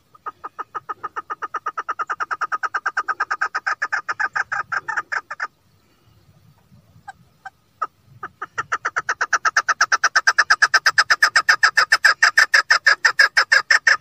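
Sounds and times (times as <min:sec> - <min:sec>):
partridge rapid chuk calls: 0:00.0 - 0:14.0.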